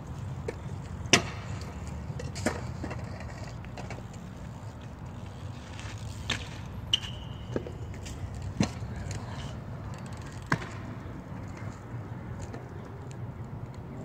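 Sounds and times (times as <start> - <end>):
bike hitting concrete and rattling: 0.6 - 12.6.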